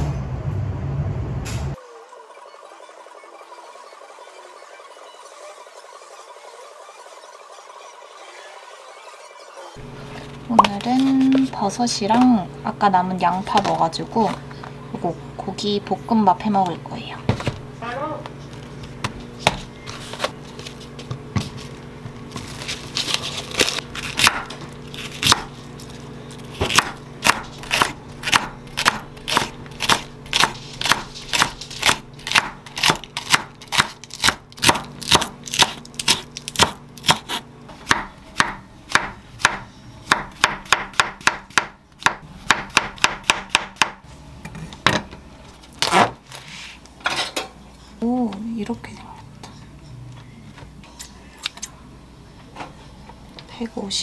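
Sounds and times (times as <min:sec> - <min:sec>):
knife chopping on wooden board: 0:23.7 - 0:25.5, 0:26.5 - 0:44.0.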